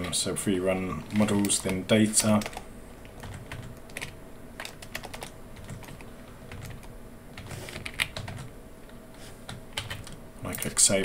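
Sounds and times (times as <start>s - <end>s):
typing on a keyboard: 1.1s - 8.5s, 9.5s - 10.8s.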